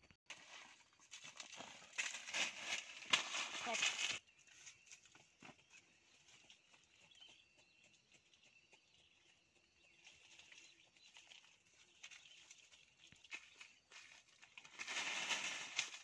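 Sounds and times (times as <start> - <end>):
rustles over dry leaves: 0.3 - 6.6, 10.0 - 16.0.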